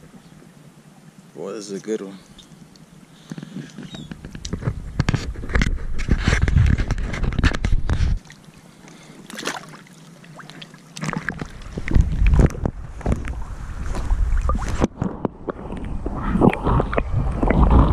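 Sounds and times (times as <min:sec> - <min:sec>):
wind buffeting microphone: 0:11.4 - 0:17.9.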